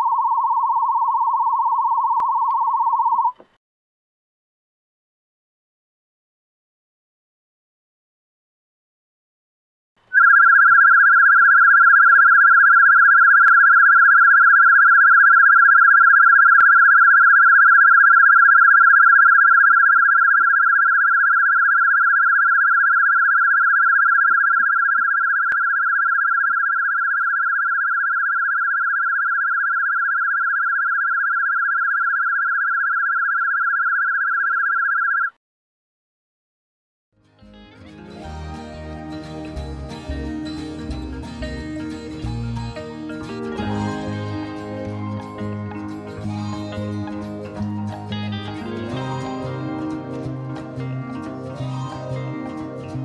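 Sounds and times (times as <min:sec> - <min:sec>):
wavering warble tone: 0:00.0 - 0:03.3, 0:10.2 - 0:35.3.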